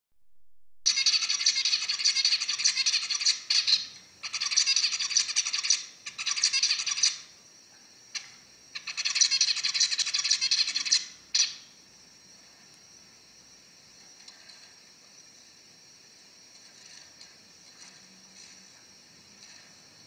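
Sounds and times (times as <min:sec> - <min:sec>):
finch singing: 0:00.9 - 0:07.3, 0:08.2 - 0:11.7.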